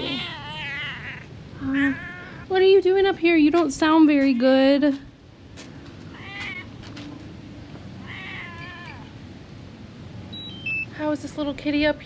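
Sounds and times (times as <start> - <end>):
cat meowing: 0.0 - 2.5, 6.1 - 6.8, 8.0 - 9.1.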